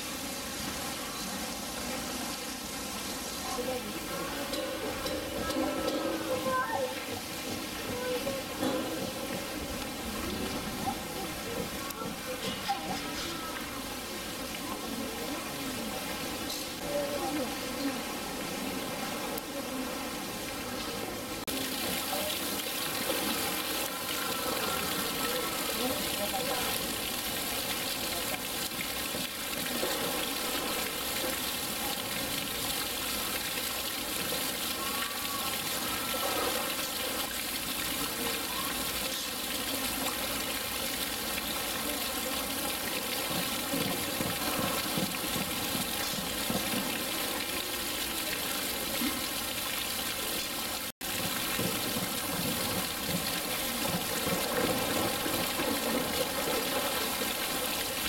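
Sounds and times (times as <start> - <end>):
water rushing and splashing: 0.0 - 58.0.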